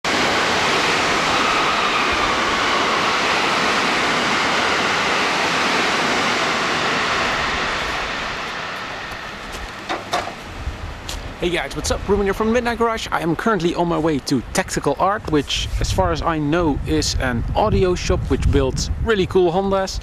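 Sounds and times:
loud rushing noise with whine: 0.0s - 12.7s.

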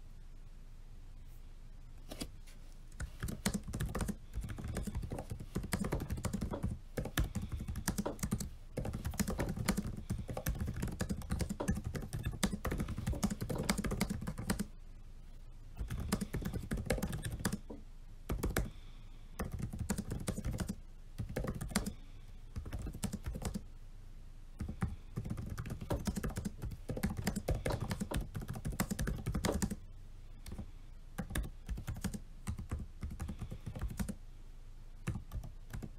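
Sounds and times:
fast typing on laptop keyboard: 3.0s - 14.7s, 15.8s - 17.7s, 18.3s - 18.7s, 19.4s - 22.0s, 22.6s - 23.6s, 24.6s - 29.8s, 30.4s - 30.6s, 31.2s - 34.2s, 35.0s - 35.9s.

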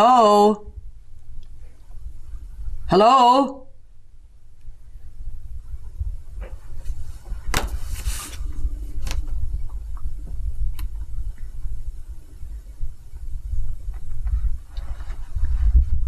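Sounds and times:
low room rumble: 0.0s - 16.0s
short rustle: 6.4s - 9.4s, 14.0s - 16.0s.

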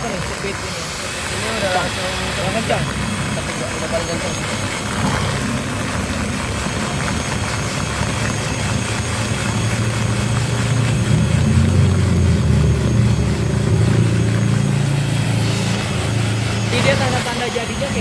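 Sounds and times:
electric hand mixer whirring: 0.0s - 18.0s.

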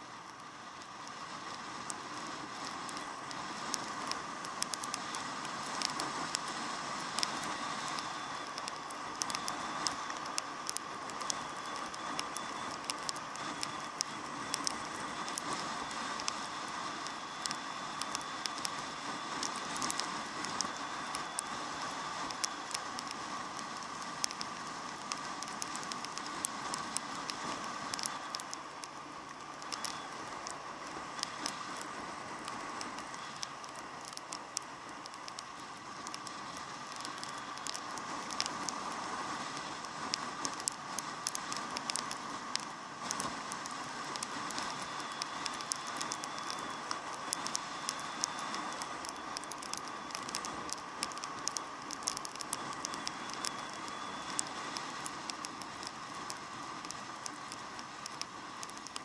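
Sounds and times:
raindrops tapping on camera case: 2.6s - 59.0s.

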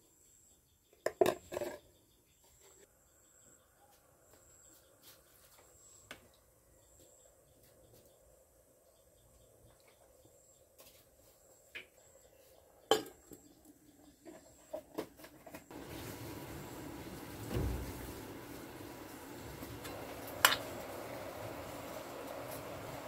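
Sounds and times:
steady background hiss: 15.7s - 23.0s
dull thump: 17.4s - 18.2s.

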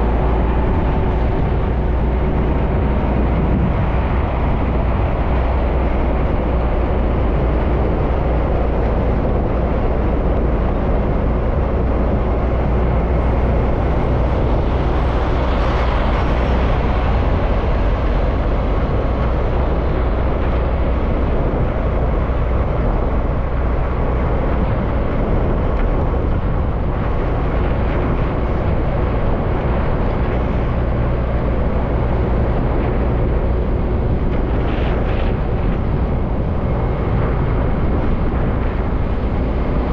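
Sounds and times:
truck engine drone: 0.0s - 39.9s
tyre and road noise: 0.0s - 39.9s.

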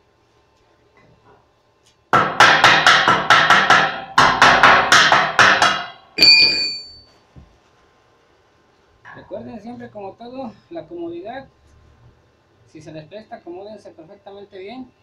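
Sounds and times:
hammer clanging on floor: 2.8s - 7.1s.

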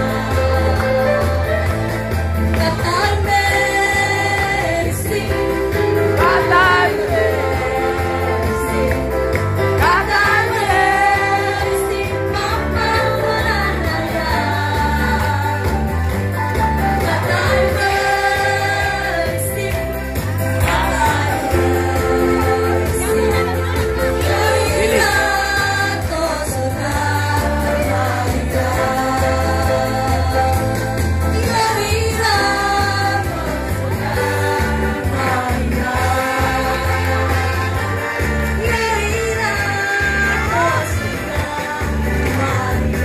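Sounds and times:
amplified pop song with singing: 0.0s - 43.0s.

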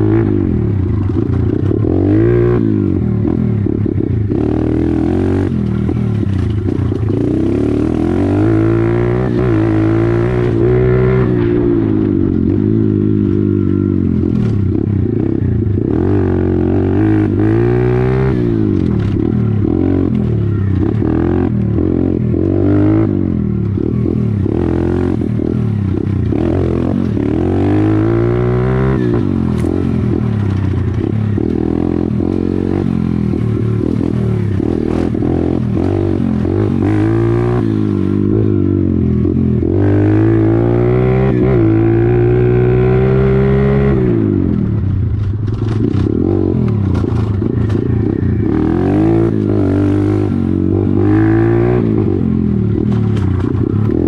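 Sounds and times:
pit bike engine revving: 0.0s - 54.0s
bike rattling over rough ground: 5.5s - 8.0s, 28.8s - 37.4s, 44.6s - 50.4s, 52.7s - 54.0s.

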